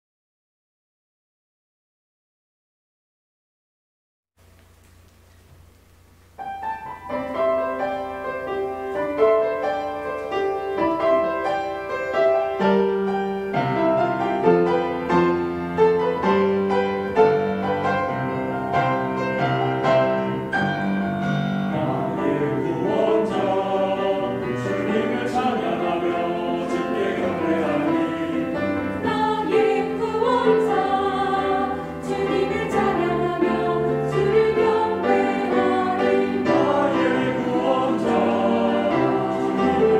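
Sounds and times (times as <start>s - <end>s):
piano: 4.4s - 39.9s
church choir singing: 6.6s - 39.9s.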